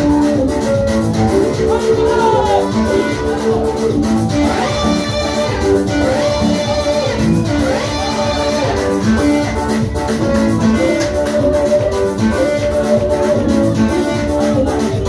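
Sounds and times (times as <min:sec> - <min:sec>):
gospel music with guitar: 0:00.0 - 0:15.0.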